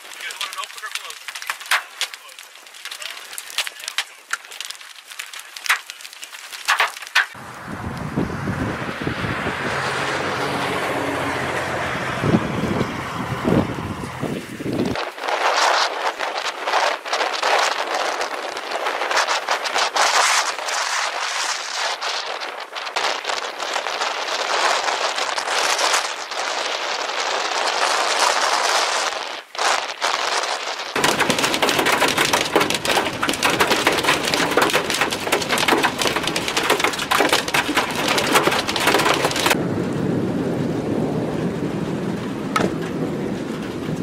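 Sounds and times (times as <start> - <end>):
hail hitting car windshield: 0.0 - 7.4, 30.9 - 39.6
wind and rain rushing: 0.0 - 44.0
moving car rumble: 7.4 - 15.0, 31.0 - 44.0.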